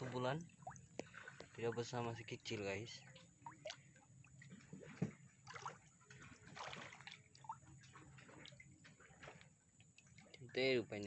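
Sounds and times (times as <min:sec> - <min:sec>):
fish splashing water: 0:00.0 - 0:01.6, 0:03.1 - 0:10.3.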